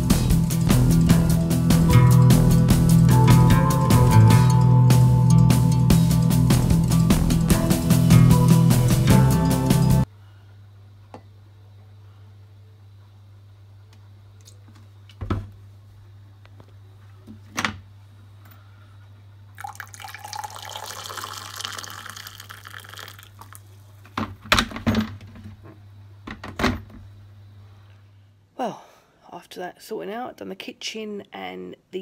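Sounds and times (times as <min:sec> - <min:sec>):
water pouring into mug: 0:19.6 - 0:23.7.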